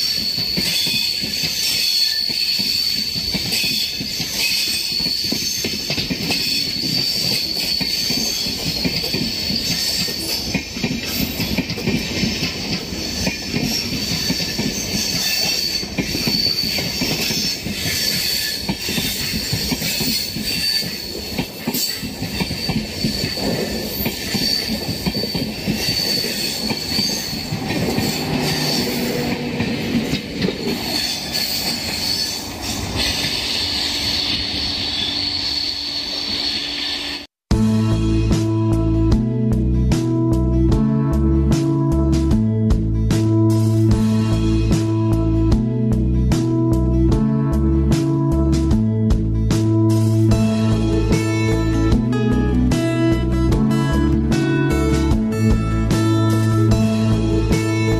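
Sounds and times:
high-pitched wheel squeal: 0.0 - 11.6, 13.0 - 37.3
train wheels clattering on rails: 0.0 - 35.3.

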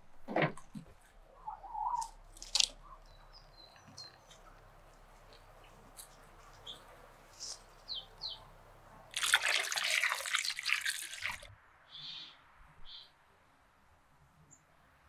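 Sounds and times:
water splashing into a metal bowl: 9.1 - 11.5.

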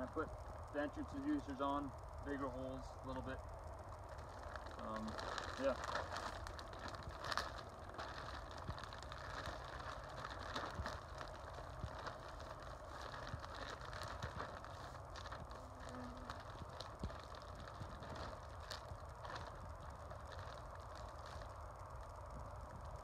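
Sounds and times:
plastic wrap rustling and crinkling: 4.1 - 23.0.

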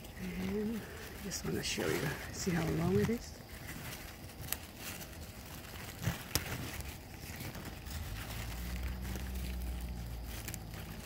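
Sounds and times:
leaves and vines rustling: 0.0 - 11.0
steady low rumble: 0.0 - 11.0.

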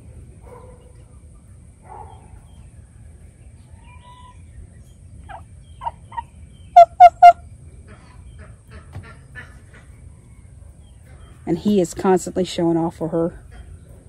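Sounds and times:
turkeys calling: 3.6 - 11.4.

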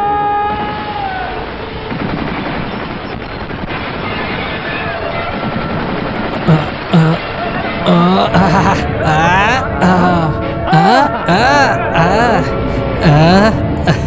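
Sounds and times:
high-pitched yell: 7.9 - 14.0.

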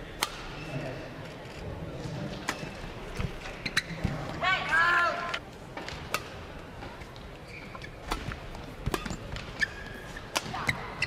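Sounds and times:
racket striking shuttlecock: 0.2 - 0.5, 8.0 - 9.5
shoes squeaking on court floor: 2.0 - 4.4, 6.8 - 11.0.

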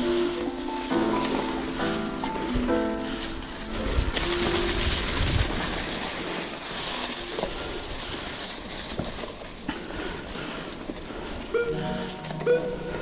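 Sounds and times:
bike tyre noise on dirt: 0.0 - 13.0
wind on microphone: 3.7 - 6.1.

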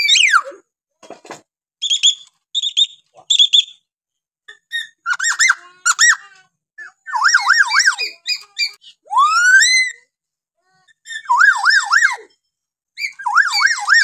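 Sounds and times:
myna bird chirping and whistling: 1.8 - 3.9, 13.0 - 14.0.

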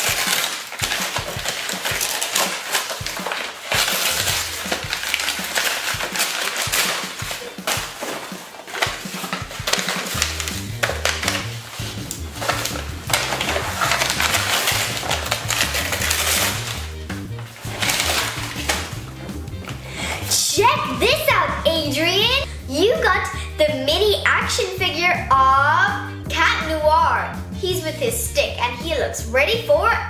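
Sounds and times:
tissue paper rustling: 0.0 - 21.8
light background music: 0.0 - 30.0.

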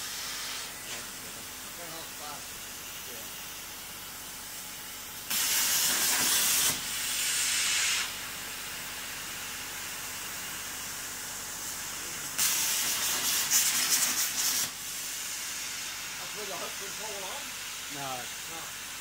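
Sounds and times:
plasma cutter hissing: 0.0 - 3.6, 5.2 - 19.0.

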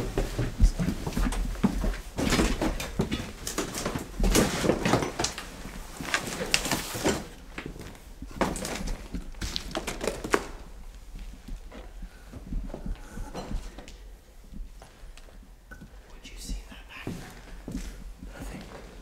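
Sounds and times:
footsteps and scuffs: 0.0 - 4.4, 16.9 - 19.0
clothing and debris rustling: 0.0 - 16.0.

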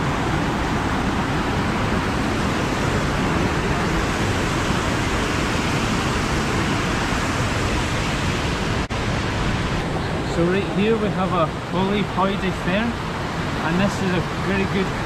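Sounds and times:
water rushing over boulders: 0.0 - 15.0.

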